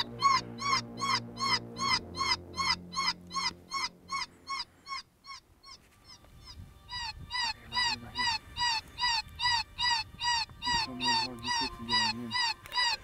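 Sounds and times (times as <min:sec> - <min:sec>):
canine yelps from predator call: 0:07.0 - 0:13.0.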